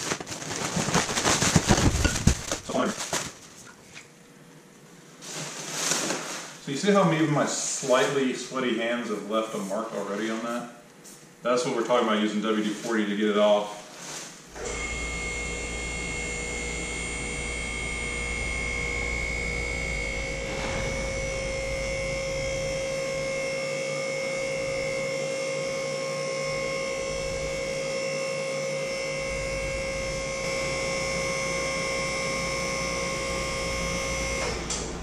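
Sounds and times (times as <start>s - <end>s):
hydraulic pump motor humming: 14.5s - 35.0s.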